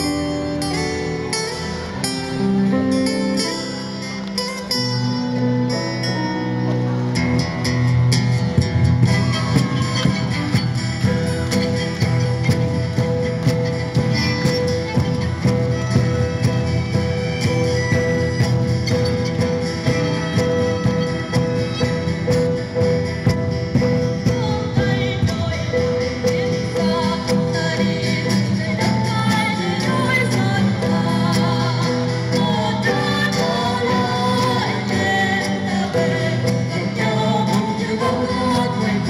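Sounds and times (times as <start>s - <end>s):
strummed acoustic guitars: 0.0s - 39.0s
violins playing melody: 9.0s - 24.8s.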